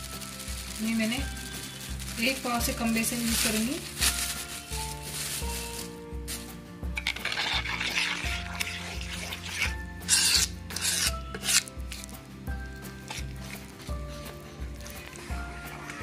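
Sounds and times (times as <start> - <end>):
background music with low beat: 0.0 - 16.0
spoon scraping in bowl: 7.0 - 11.7.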